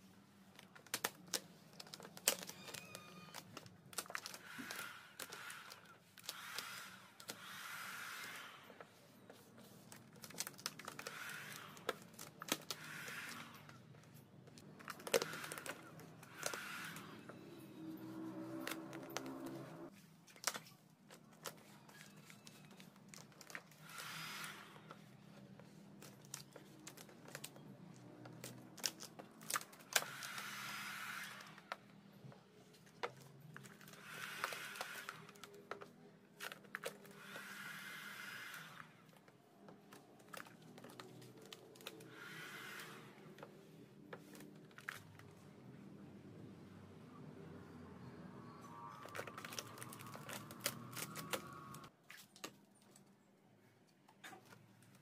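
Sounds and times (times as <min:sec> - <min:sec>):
film crinkling and clicking: 0:00.4 - 0:07.5, 0:09.8 - 0:24.1, 0:24.8 - 0:30.5, 0:39.1 - 0:42.1, 0:48.8 - 0:53.2
squeegee scraping film: 0:00.5 - 0:45.6, 0:48.6 - 0:52.5.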